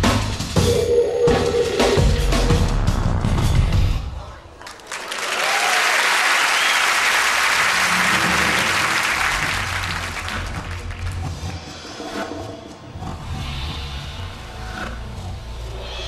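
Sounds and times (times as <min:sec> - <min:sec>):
music: 0:00.0 - 0:04.4, 0:07.6 - 0:16.0
audience applauding: 0:04.6 - 0:11.4.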